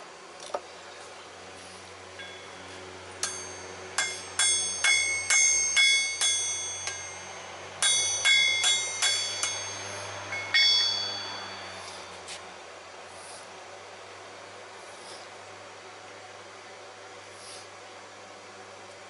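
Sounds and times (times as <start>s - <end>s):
hammer ringing on anvil: 2.2s - 12.3s.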